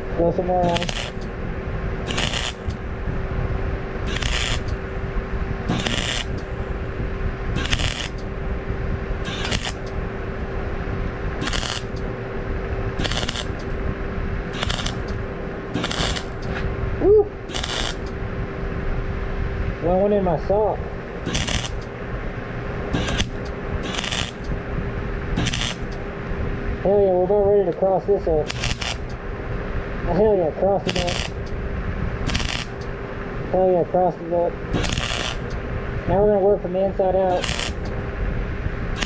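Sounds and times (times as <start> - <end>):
welding arc hissing surge: 0.0 - 1.4, 2.0 - 6.9, 7.5 - 8.4, 9.1 - 10.3, 11.4 - 12.2, 12.9 - 13.8, 14.4 - 16.7, 17.3 - 18.2, 19.8 - 21.9, 22.8 - 24.6, 25.3 - 26.0, 27.8 - 29.2, 30.2 - 31.5, 32.2 - 32.9, 33.6 - 38.0
welding arc crackling: 0.0 - 18.3, 19.8 - 22.0, 22.6 - 29.2, 30.1 - 38.1
small fan humming: 0.0 - 39.0.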